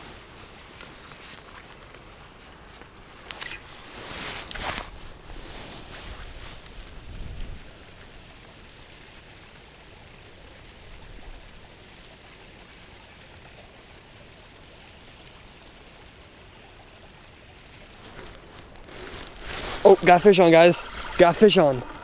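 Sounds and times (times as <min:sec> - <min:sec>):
river water rushing: 0:17.8 - 0:22.0.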